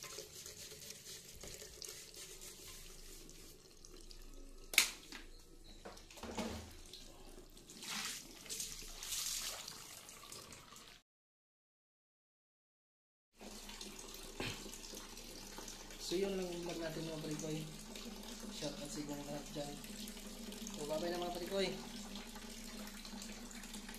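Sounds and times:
tap water running into sink: 0.0s - 11.0s, 13.4s - 23.9s.

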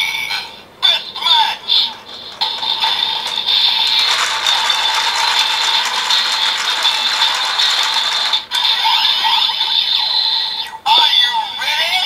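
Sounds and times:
plastic gears ratcheting: 1.7s - 8.5s.

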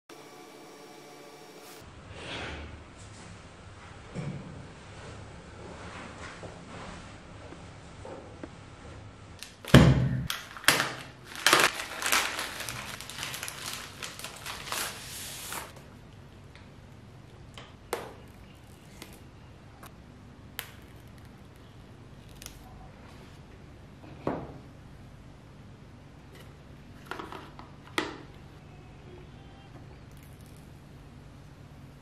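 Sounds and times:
packaging crinkling: 10.3s - 15.8s.

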